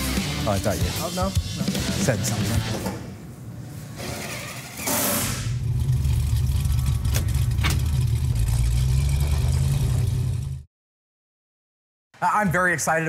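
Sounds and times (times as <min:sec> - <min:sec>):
car engine rumbling low: 0:05.5 - 0:10.7.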